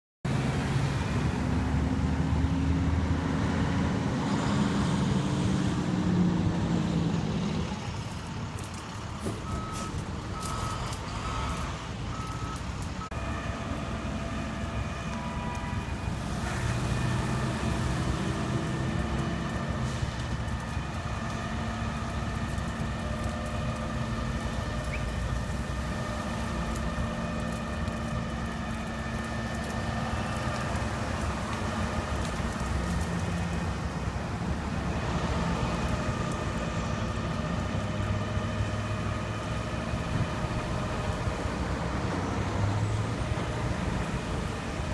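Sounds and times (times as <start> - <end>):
diesel engine running: 0.3 - 44.9
reversing beeps: 9.4 - 13.2.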